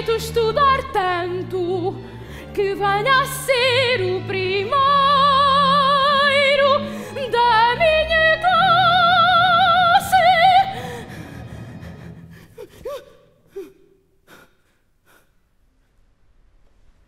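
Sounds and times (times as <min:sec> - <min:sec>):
woman singing with vibrato: 0:00.0 - 0:10.9
orchestra: 0:00.0 - 0:12.6.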